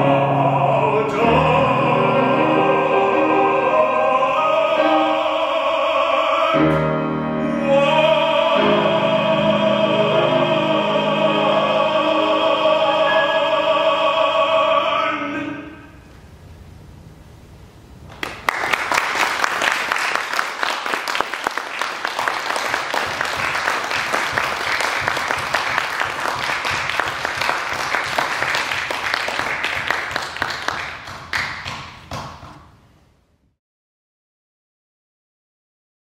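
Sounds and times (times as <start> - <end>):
audience applauding: 18.1 - 32.5.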